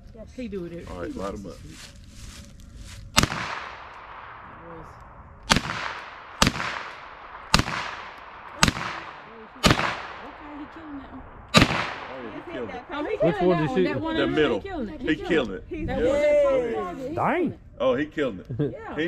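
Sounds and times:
rifle shots with echo: 3.1 - 13.2.

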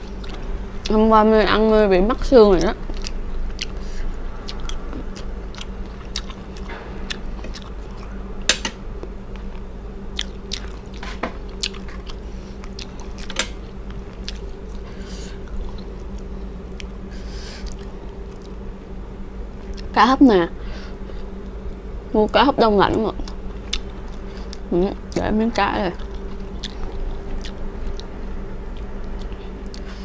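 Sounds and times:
steady low hum: 0.0 - 30.0
person chewing food: 2.8 - 18.7, 23.2 - 25.2, 26.0 - 30.0.

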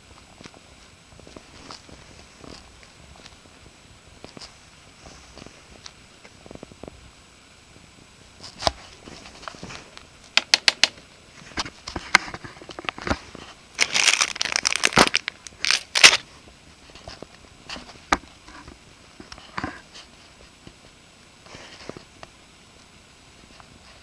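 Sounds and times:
clicks and taps: 10.3 - 11.0
plastic bag crinkling: 12.8 - 16.3.

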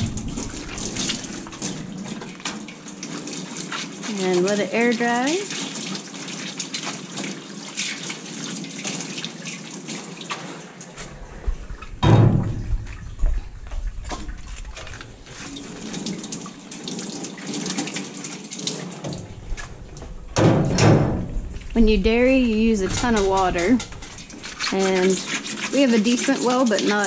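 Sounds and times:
faucet water running into steel sink: 0.0 - 10.9, 11.5 - 27.0
metal parts clanking: 22.8 - 24.6.

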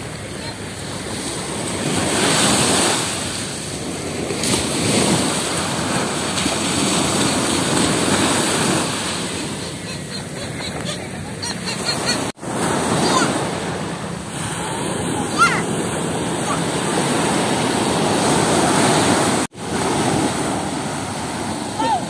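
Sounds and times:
sea surf breaking: 0.0 - 22.0.

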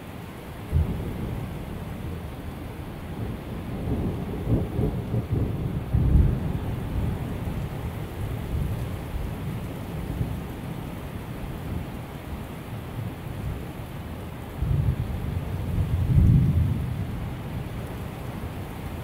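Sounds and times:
heavy rain: 0.0 - 19.0
thunder rumbling: 0.7 - 8.8, 14.6 - 17.5.

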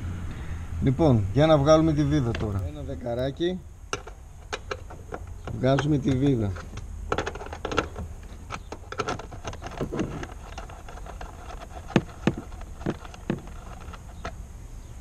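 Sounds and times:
wrench metallic clicks and taps: 3.9 - 14.4.

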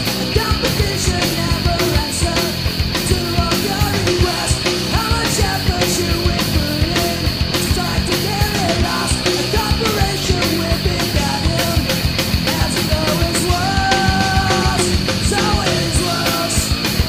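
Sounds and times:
bass guitar: 0.0 - 17.0
distorted electric guitars: 0.0 - 17.0
drums playing: 0.0 - 17.0.

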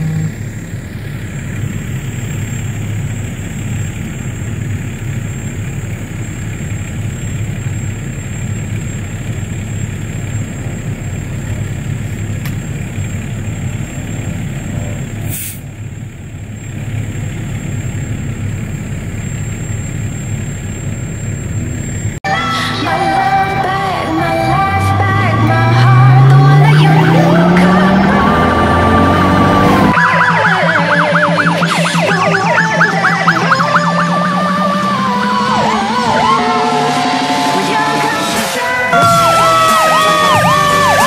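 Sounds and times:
diesel engine idling: 0.0 - 41.0
air hiss: 15.3 - 15.7.

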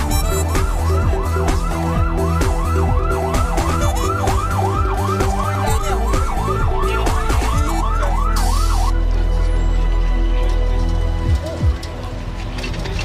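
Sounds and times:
fire truck siren yelping: 0.0 - 9.1.

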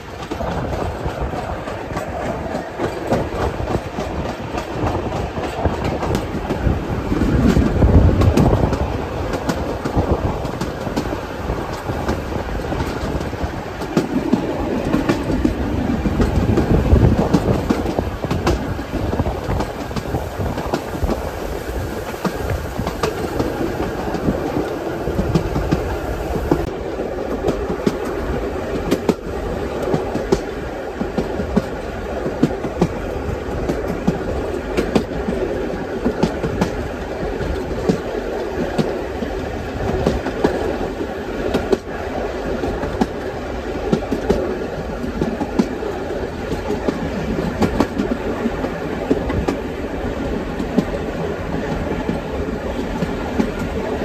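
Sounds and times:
train rumble: 0.0 - 54.0
train wheels clicking over rail joints: 0.0 - 54.0.

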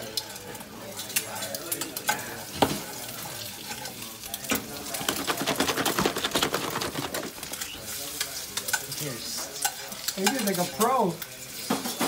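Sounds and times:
food sizzling in frying pan: 7.6 - 12.0.

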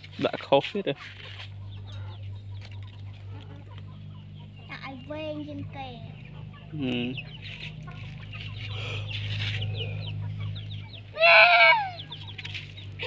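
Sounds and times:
chickens clucking: 0.0 - 13.0
steady low hum: 0.0 - 13.0
loud bird cry: 1.1 - 5.2, 6.1 - 13.0.

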